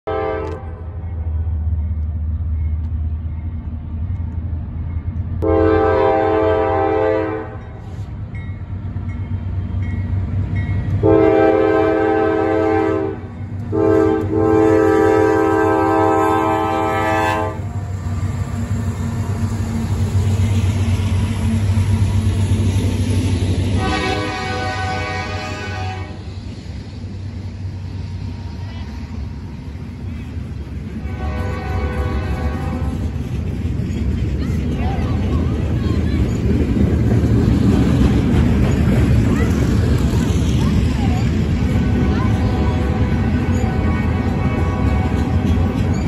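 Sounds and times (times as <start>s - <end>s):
train horn blasts: 0.0s - 1.0s, 5.4s - 8.0s, 11.0s - 17.8s, 23.8s - 26.3s, 31.0s - 33.0s, 41.7s - 45.9s
low rumble of locomotive engines: 0.0s - 46.0s
freight cars rumbling past: 0.6s - 46.0s.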